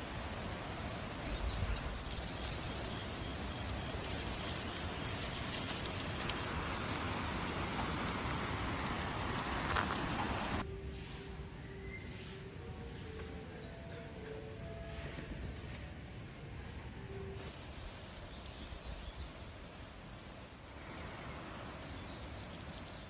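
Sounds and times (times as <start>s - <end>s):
outdoor background hiss: 0.0s - 23.0s.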